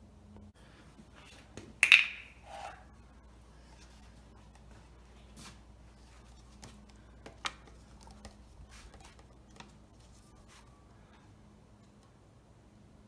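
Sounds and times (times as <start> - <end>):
plastic funnel clicks and knocks: 1.8 - 2.3.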